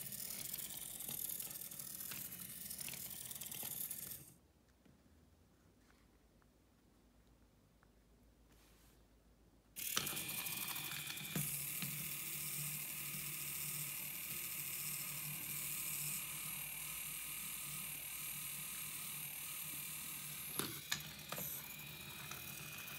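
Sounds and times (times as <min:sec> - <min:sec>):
small electric motors running: 0:00.0 - 0:04.4, 0:09.8 - 0:22.9.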